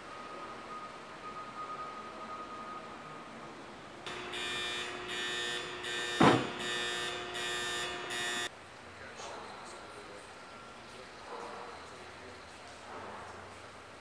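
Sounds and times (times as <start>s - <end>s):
pulsing electronic alarm: 4.1s - 8.5s
loud sharp bang: 6.2s - 6.6s.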